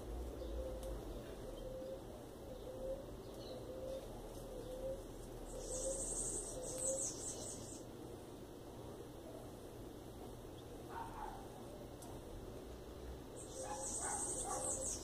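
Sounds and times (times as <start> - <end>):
dove cooing: 0.0 - 7.8, 13.4 - 15.0.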